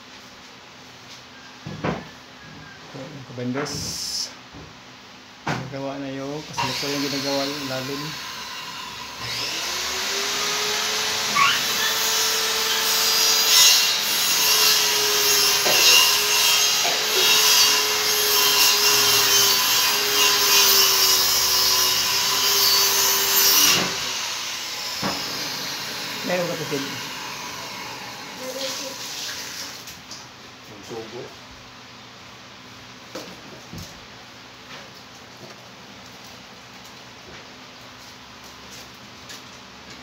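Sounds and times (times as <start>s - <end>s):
power tool whining: 6.6s - 28.5s.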